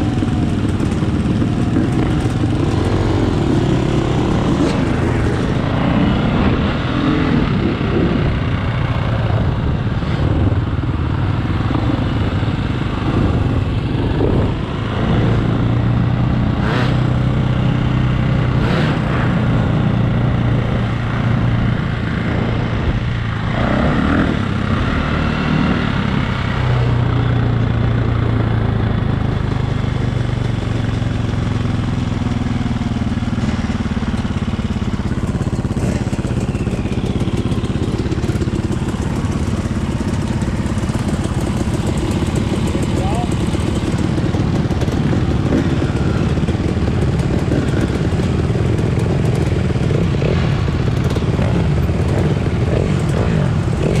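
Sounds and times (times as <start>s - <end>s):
dirt bike engine revving: 0.0s - 8.2s, 11.8s - 26.6s, 35.6s - 54.0s.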